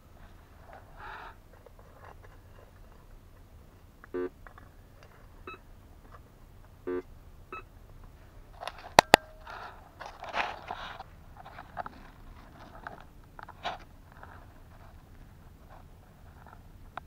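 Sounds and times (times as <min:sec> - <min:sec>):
electronic buzzing beeps: 0:04.1 - 0:04.4, 0:05.4 - 0:05.7, 0:06.8 - 0:07.7
metal bracelets rustling and scraping: 0:08.5 - 0:16.7.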